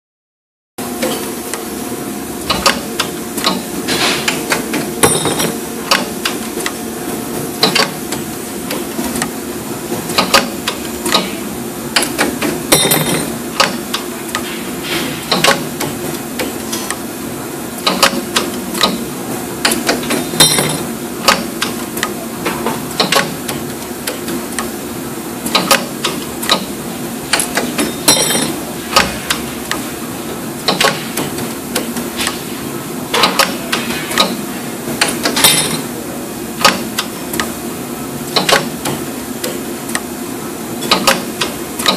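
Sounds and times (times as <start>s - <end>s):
metallic clacks and clicks: 40.8s - 41.9s.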